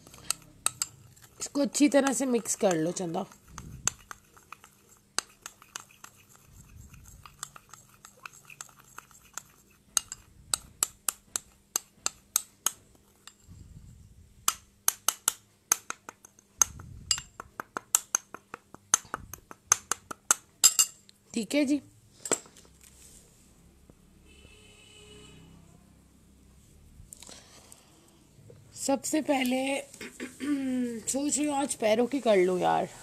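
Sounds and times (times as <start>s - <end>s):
metal spoon scraping bowl: 0.0s - 12.5s, 13.1s - 13.6s.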